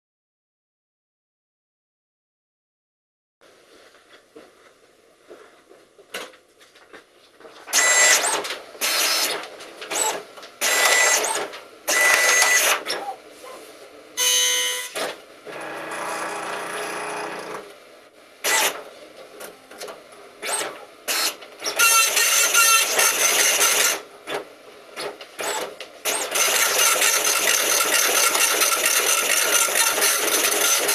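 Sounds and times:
dot matrix printer printing: 7.7 - 13.2, 18.4 - 30.9.

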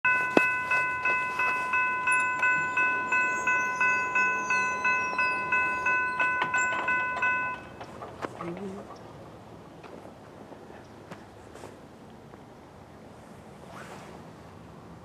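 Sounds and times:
crossing warning bell ringing: 0.0 - 9.0.

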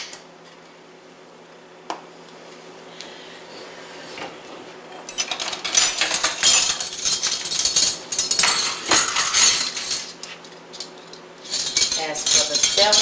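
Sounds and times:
metal kitchen utensils clattering: 5.0 - 13.0.

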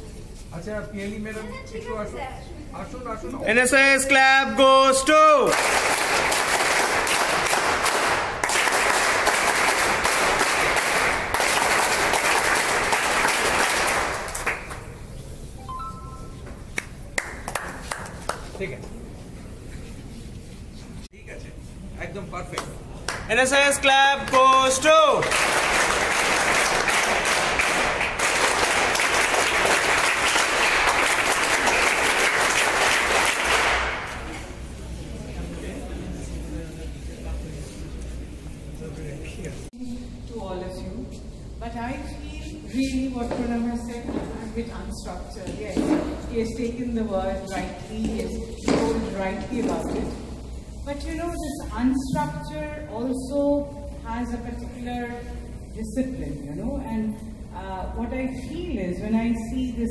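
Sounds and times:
audience applauding: 5.4 - 14.9, 17.2 - 18.5, 24.3 - 34.3.

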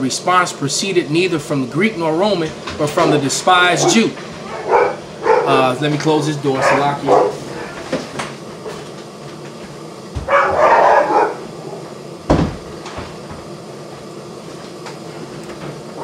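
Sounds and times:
door closing: 12.3 - 13.1.

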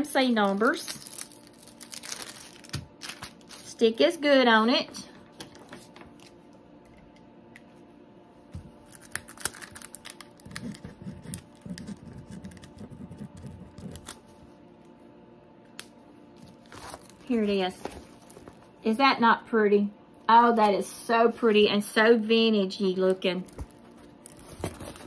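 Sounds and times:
marker pen scratching on canvas: 10.6 - 13.9.

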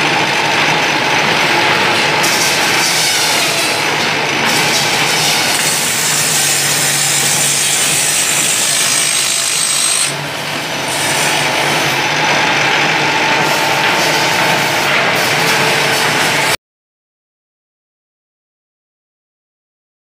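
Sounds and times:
saw cutting bamboo sticks: 1.5 - 16.6.

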